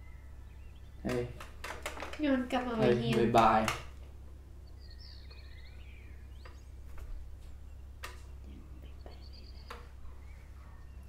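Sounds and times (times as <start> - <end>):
faint bird chirps: 0.0 - 1.4, 4.6 - 11.0
steady low hum: 0.0 - 11.0
soft clicks: 8.0 - 8.4.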